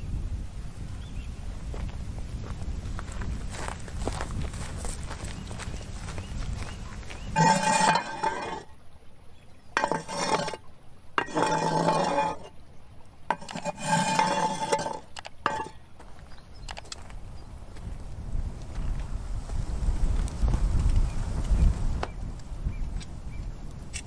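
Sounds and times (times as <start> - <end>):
metal rake scraping oven floor: 7.4 - 8.7, 9.8 - 10.6, 11.2 - 12.5, 13.3 - 15.8.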